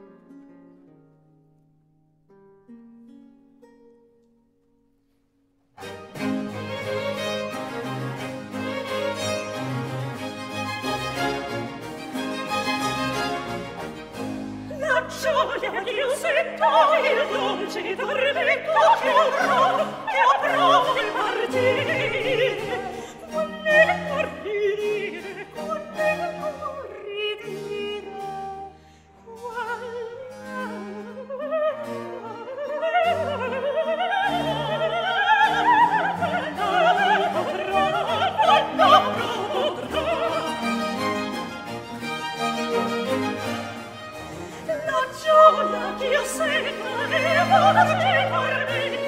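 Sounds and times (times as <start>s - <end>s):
orchestral accompaniment: 5.8s - 28.7s, 29.3s - 49.0s
person singing opera with vibrato: 14.7s - 41.3s, 44.2s - 49.0s.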